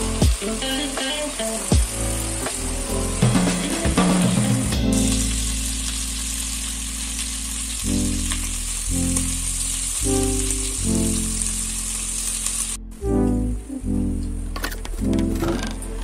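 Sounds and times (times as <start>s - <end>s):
chicken sizzling in hot oil: 0.0s - 12.8s
background music chords: 0.0s - 16.0s.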